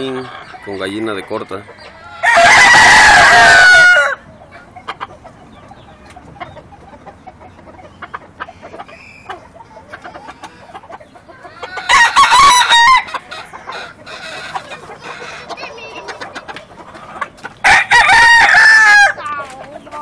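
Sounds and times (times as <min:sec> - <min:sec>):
rooster crowing: 0:01.5 - 0:04.3, 0:11.6 - 0:15.4, 0:17.6 - 0:19.3.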